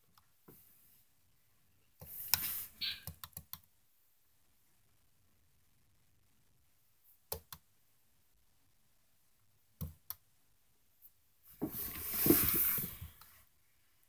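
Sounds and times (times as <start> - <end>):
computer mouse clicks: 2.0 - 3.7, 7.3 - 7.6.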